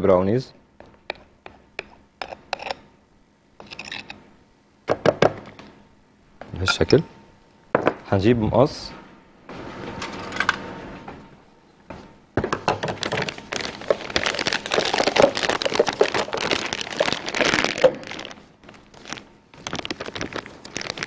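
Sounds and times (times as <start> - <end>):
plastic bag crinkling: 13.0 - 21.0.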